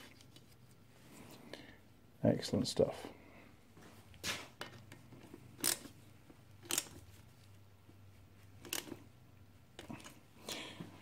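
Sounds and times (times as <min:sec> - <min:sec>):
ratchet clicking: 0:05.6 - 0:05.9, 0:06.6 - 0:07.0.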